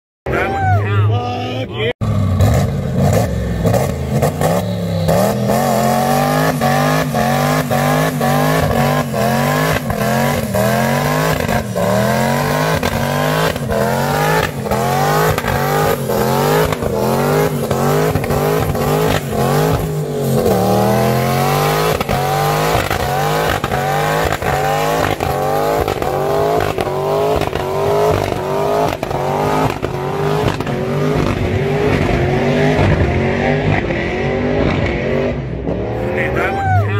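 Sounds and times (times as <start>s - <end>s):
car engine revving: 1.9s - 36.9s
sharp exhaust pops: 21.9s - 31.5s.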